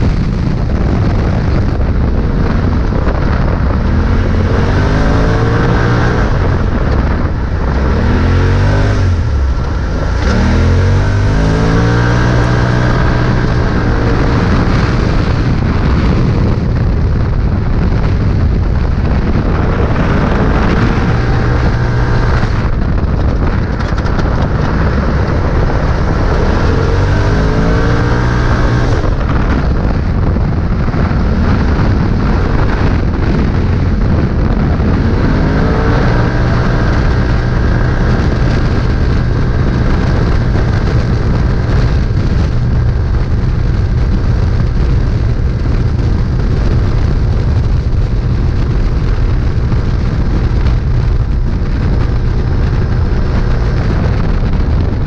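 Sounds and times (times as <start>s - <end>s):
engine revving under hard throttle: 0.0s - 55.0s.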